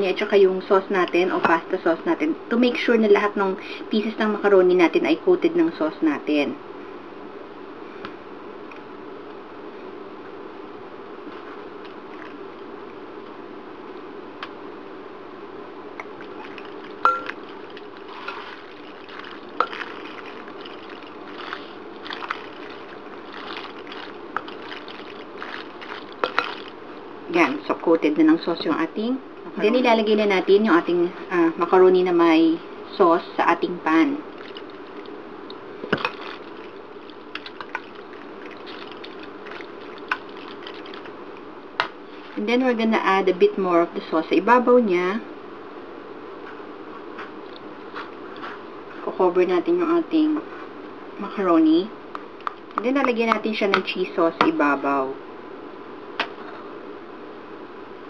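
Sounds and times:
steady low hum: 0.0 - 58.0
macaroni squishing in meat sauce: 16.0 - 26.9, 34.2 - 42.4.

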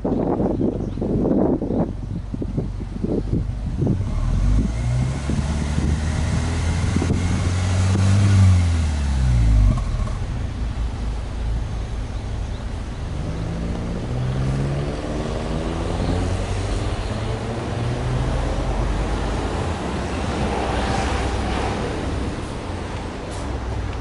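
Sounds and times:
car engine revving: 3.6 - 11.4, 13.0 - 22.2.

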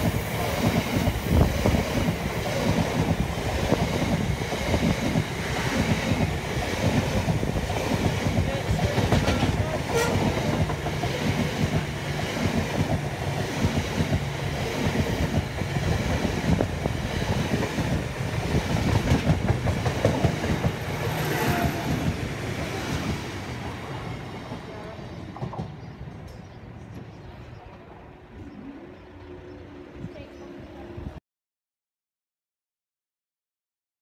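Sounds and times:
freight train wheels clattering: 0.0 - 27.2.

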